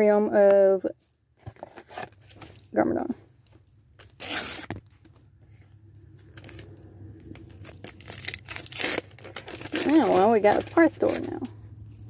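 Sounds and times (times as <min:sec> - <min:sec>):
faint low hum: 0:02.5 - 0:12.0
paper stickers rustling: 0:06.2 - 0:12.0.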